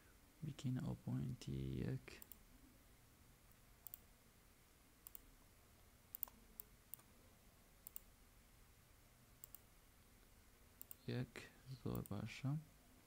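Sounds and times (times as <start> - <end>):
faint room hiss: 0.0 - 13.0
computer mouse clicks: 2.2 - 2.4, 3.8 - 4.1, 5.0 - 5.3, 6.1 - 7.1, 7.8 - 8.1, 9.4 - 9.7, 10.8 - 11.0, 11.9 - 12.2.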